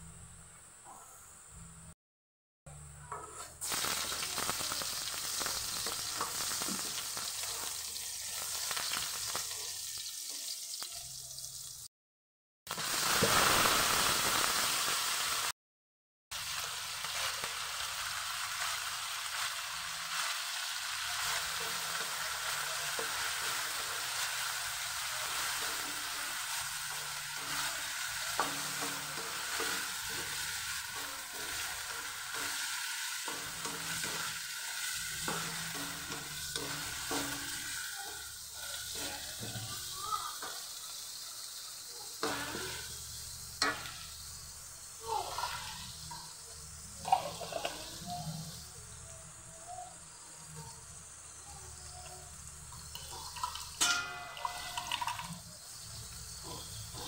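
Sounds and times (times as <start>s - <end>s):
potato and onion sizzling in oil: 3.0s - 11.9s, 12.7s - 15.5s, 16.3s - 57.0s
wooden spatula stirring in wok: 16.5s - 40.6s.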